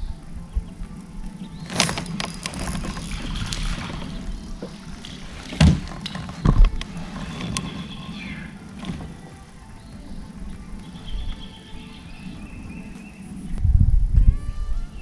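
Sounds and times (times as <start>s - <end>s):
fishing reel clicks and rustles: 1.0s - 9.6s
handling sounds in a kayak: 1.6s - 10.0s
dull thumps against a hull: 5.4s - 6.8s.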